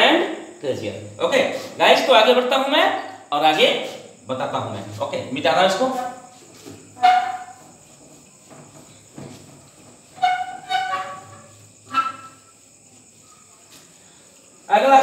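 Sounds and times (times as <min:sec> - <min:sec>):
whiteboard being wiped: 0:01.4 - 0:01.8, 0:05.7 - 0:14.6
high squeaks on whiteboard: 0:05.8 - 0:14.2.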